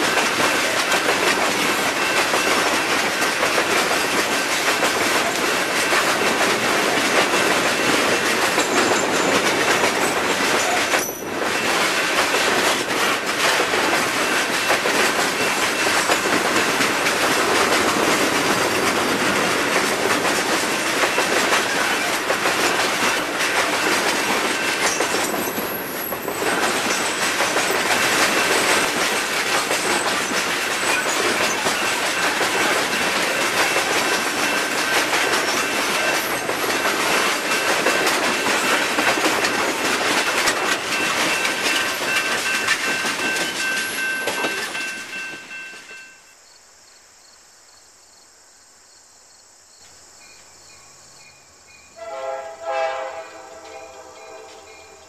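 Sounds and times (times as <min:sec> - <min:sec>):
train wheels clacking on rails: 0:00.0 - 0:46.3, 0:51.0 - 0:55.0
locomotive horn: 0:52.0 - 0:55.0.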